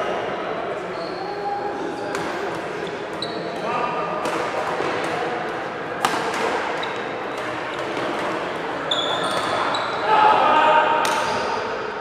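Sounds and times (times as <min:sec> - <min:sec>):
shoes squeaking on floor: 0:00.9 - 0:03.9, 0:06.8 - 0:08.2, 0:08.8 - 0:10.1
rackets striking shuttlecock: 0:03.6 - 0:08.5.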